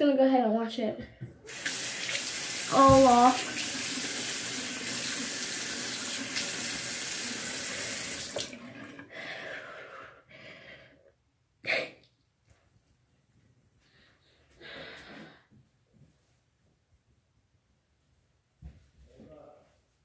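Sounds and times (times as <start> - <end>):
water splashing on face: 1.5 - 8.6
faucet running: 1.5 - 9.1.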